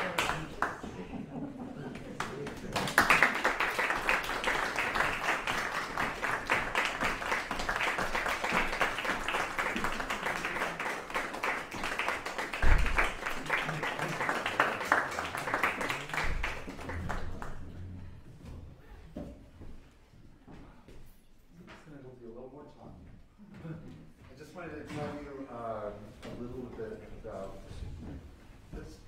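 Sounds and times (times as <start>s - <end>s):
audience applauding: 0.0s - 1.1s, 1.9s - 18.0s.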